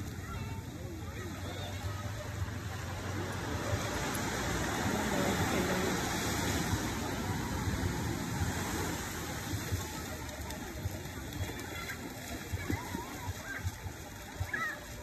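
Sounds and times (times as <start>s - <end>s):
small waves breaking on beach: 0.0s - 15.0s.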